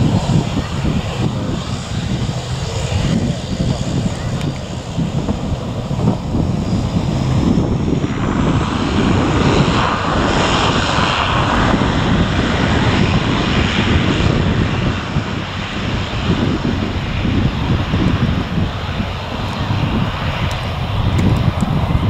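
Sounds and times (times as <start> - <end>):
airliner engines rushing: 0.0 - 22.0.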